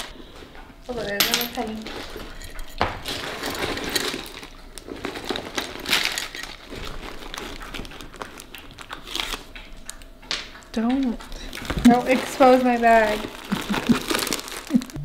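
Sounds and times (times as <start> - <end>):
coins clinking: 1.0 - 1.8
plastic wrappers crinkling: 3.0 - 15.0.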